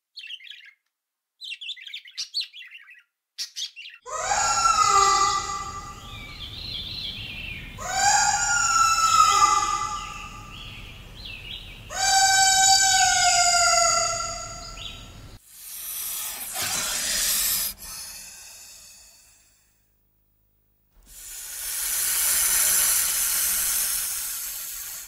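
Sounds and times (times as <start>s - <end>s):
long animal calls: 4.1s - 6.6s, 7.8s - 11.0s, 11.8s - 19.6s, 21.1s - 25.0s
hiss: 15.4s - 19.8s, 21.0s - 25.0s.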